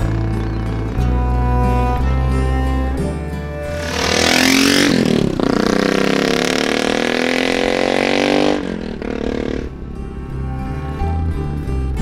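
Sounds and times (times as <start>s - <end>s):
motorcycle engine accelerating: 0.0s - 1.0s, 3.6s - 10.3s.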